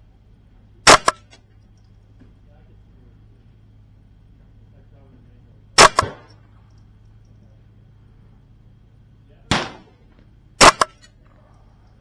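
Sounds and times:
rifle shots: 0.8s - 1.3s, 5.8s - 6.4s, 9.5s - 11.1s.

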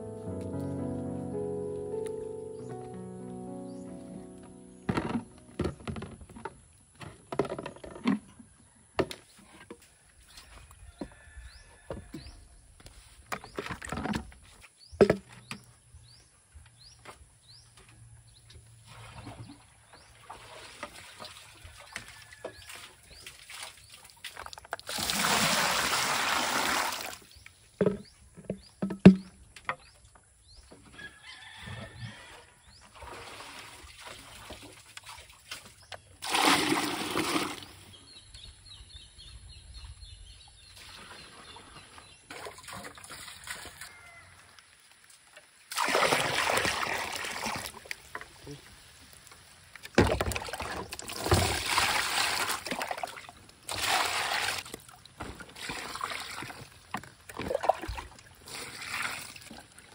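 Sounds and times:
bucket knocks: 4.7s - 8.3s, 14.9s - 15.7s, 27.8s - 29.9s, 49.9s - 51.9s
water pouring into plastic basin: 20.2s - 27.3s, 36.2s - 37.9s, 45.7s - 48.2s, 49.8s - 59.9s
water sloshing: 45.3s - 59.9s.

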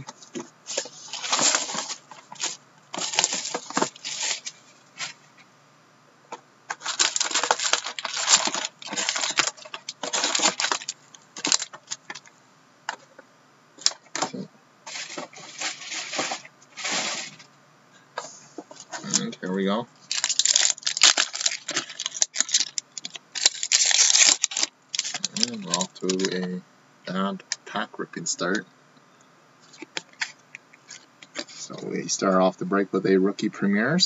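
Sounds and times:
card packs rustling: 0.0s - 5.3s, 6.7s - 12.3s, 13.8s - 17.5s, 20.0s - 26.5s, 29.6s - 31.8s
plastic wrap crinkling and tearing: 0.7s - 5.2s, 6.7s - 12.3s, 13.8s - 17.4s, 20.1s - 26.4s, 29.6s - 31.7s.

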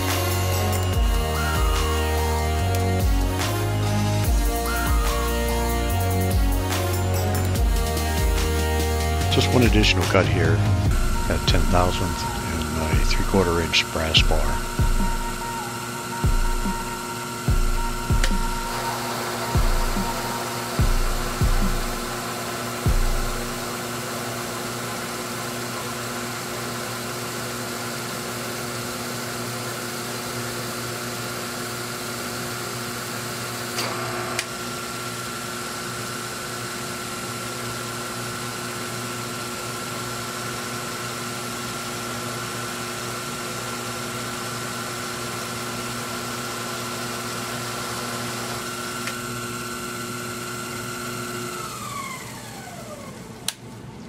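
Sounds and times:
lathe motor whine: 0.0s - 54.0s
low hum: 9.8s - 22.3s.

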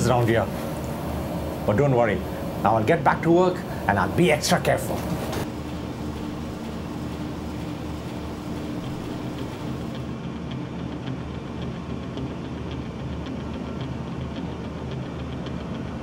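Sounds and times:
industrial machinery humming: 0.0s - 11.0s
light regular ticking: 0.1s - 10.0s.

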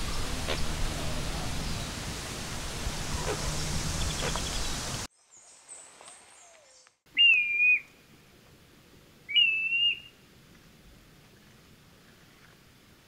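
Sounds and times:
steady rushing noise: 0.0s - 5.1s
plover whistled calls: 7.1s - 7.9s, 9.3s - 10.1s.

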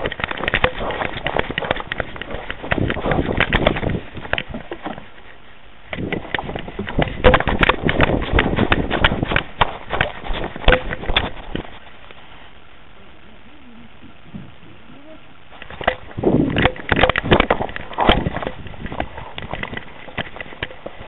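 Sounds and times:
dog paws thumping: 0.0s - 5.1s, 5.9s - 11.8s
camera jolting: 15.6s - 21.0s.

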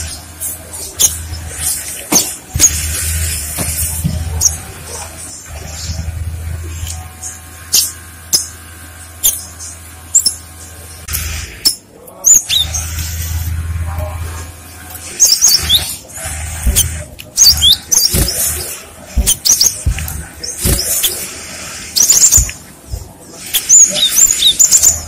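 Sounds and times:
low steady hum: 0.0s - 25.0s
bird chirping and whistling: 9.2s - 10.5s, 11.6s - 13.4s, 15.1s - 16.0s, 16.6s - 21.2s, 21.9s - 22.6s, 23.5s - 25.0s.

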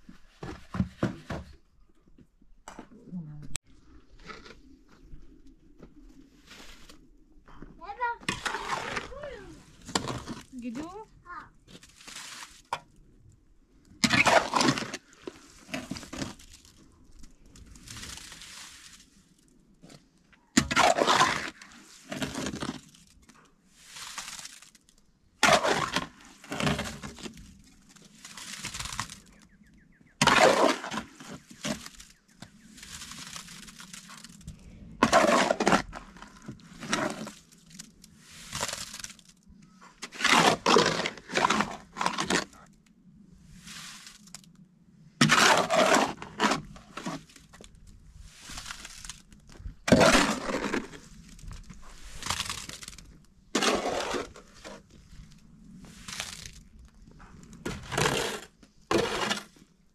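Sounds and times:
cement scraping in a wheelbarrow: 7.8s - 11.0s, 11.7s - 12.8s, 14.0s - 16.8s, 17.6s - 19.2s, 20.6s - 23.1s, 23.7s - 24.8s, 25.4s - 29.4s, 30.2s - 39.3s, 40.0s - 42.7s, 43.5s - 44.4s, 45.2s - 55.2s, 55.8s - 59.7s.

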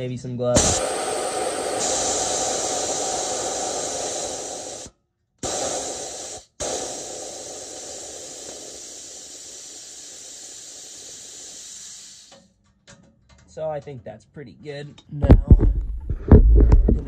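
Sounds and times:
compressed air hissing from valve: 0.6s - 12.4s.

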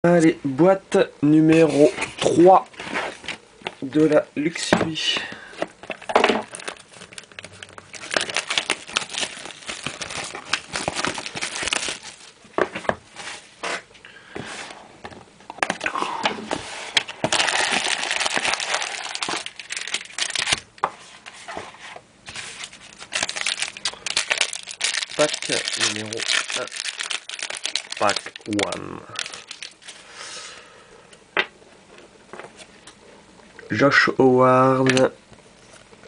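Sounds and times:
plastic wrapping crinkling: 5.6s - 12.9s, 16.9s - 20.9s, 22.2s - 30.1s.

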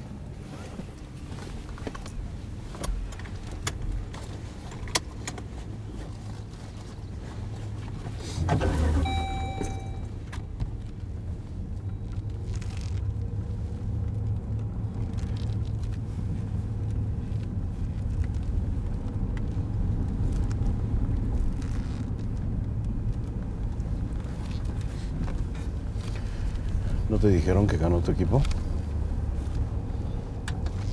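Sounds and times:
car road and engine rumble: 0.0s - 30.9s
short high tone: 8.9s - 10.2s.

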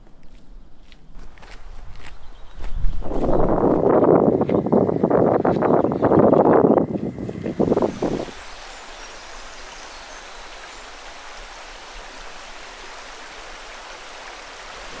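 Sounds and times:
steady rushing noise: 7.2s - 15.0s.

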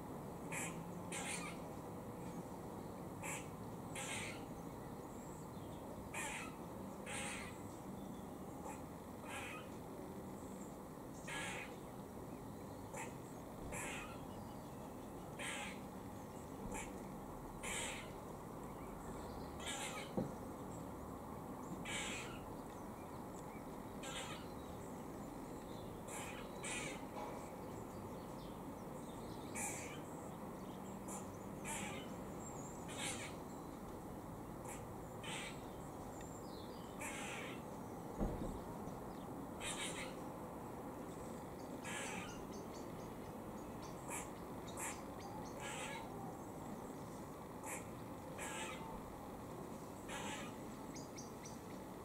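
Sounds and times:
squirrel harsh alarm calls: 0.5s - 1.6s, 3.2s - 4.5s, 6.1s - 7.6s, 8.6s - 9.7s, 11.2s - 11.8s, 12.9s - 14.3s, 15.4s - 15.9s, 16.7s - 17.0s, 17.6s - 18.2s, 19.6s - 20.2s, 21.8s - 22.5s, 24.0s - 24.5s, 26.1s - 27.1s, 29.6s - 30.1s, 31.1s - 32.2s, 32.9s - 33.4s, 34.6s - 35.7s, 37.0s - 37.7s, 39.6s - 40.2s, 41.8s - 42.6s, 44.0s - 46.1s, 47.6s - 49.0s, 50.0s - 50.6s.

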